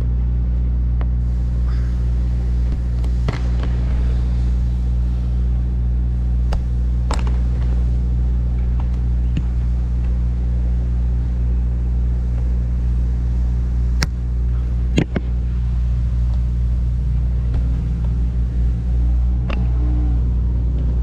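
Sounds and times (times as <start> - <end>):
engine idling hum: 0.0 - 21.0.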